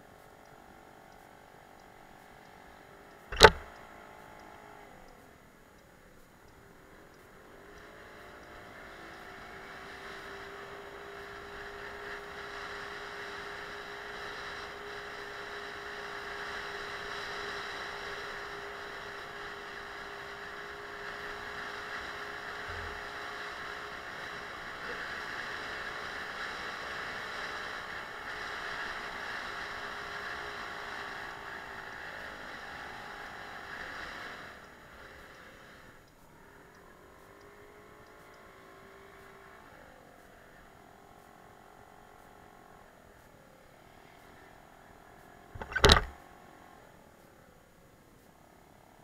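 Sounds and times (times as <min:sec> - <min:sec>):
wind and road noise: 0:00.1 - 0:49.0.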